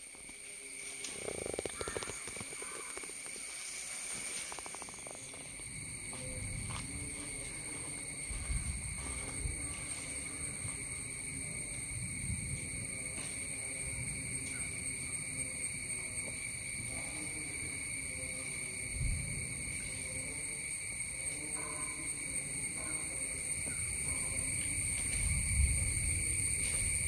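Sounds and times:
insect chorus drone: 0.0 - 27.0
low rumbles on microphone: 6.0 - 7.5.

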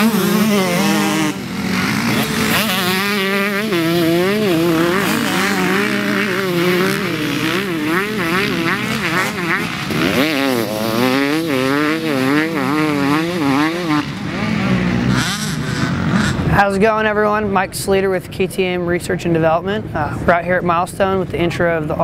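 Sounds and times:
motocross bike engine revving: 0.0 - 17.1.

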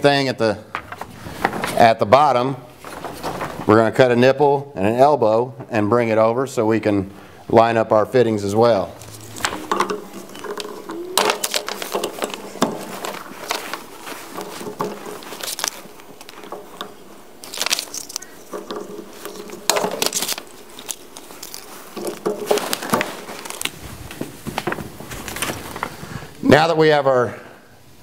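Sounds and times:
fittings clicking and scraping: 8.9 - 23.8.

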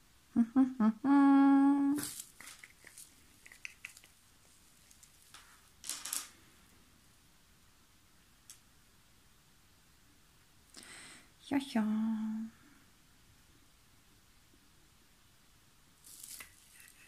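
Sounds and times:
woman humming: 0.3 - 2.1, 11.8 - 12.6
rustling: 2.0 - 6.8, 16.0 - 17.0.

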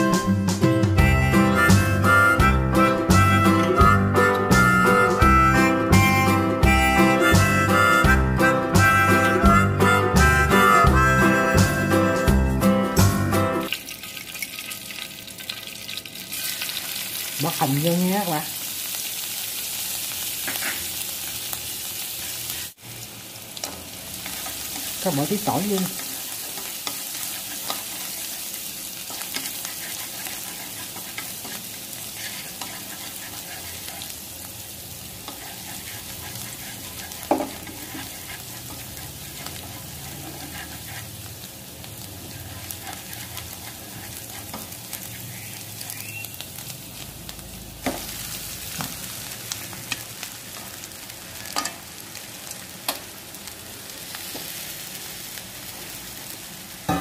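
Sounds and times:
onion and garlic sizzling in oil: 0.0 - 57.0
chopsticks scraping a pan: 20.4 - 21.4, 24.2 - 34.2, 35.2 - 41.2, 42.2 - 45.5.

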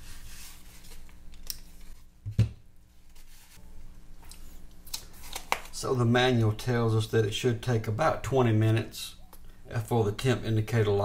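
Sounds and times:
paper rustling: 0.0 - 2.1, 4.4 - 5.8.

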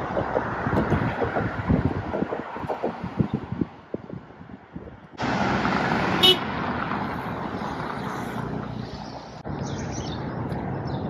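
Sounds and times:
road traffic passing: 0.0 - 11.0
car horn toot: 6.2 - 6.5
bird chirps: 9.0 - 11.0.

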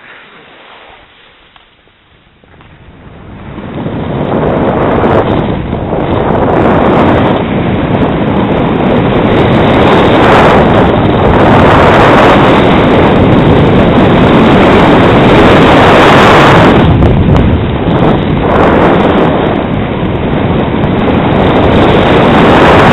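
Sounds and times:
wind buffeting microphone: 0.0 - 22.9.

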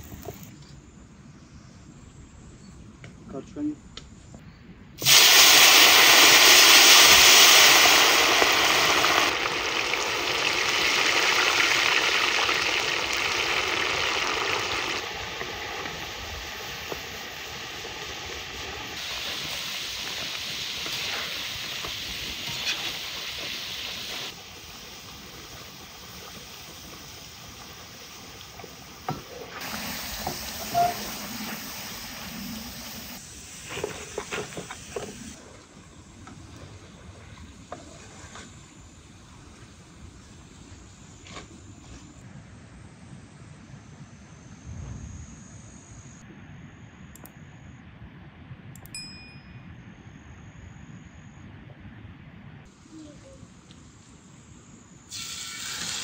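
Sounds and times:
potatoes sizzling in hot oil: 5.0 - 35.4, 55.1 - 56.0.

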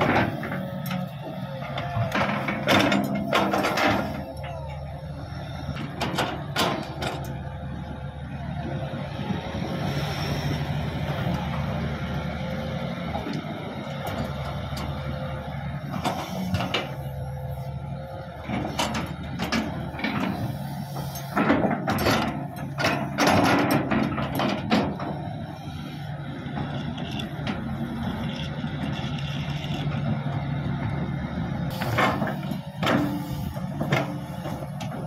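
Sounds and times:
excavator diesel engine running: 0.0 - 35.0
steel tracks clanking and squeaking: 18.5 - 25.4, 31.7 - 35.0.

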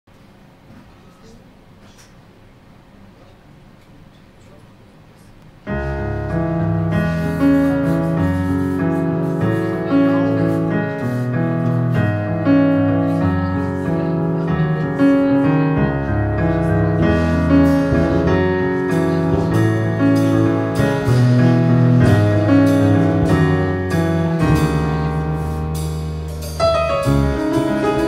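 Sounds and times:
piano: 5.4 - 28.0
bass: 5.7 - 28.0
drums: 5.8 - 28.0.

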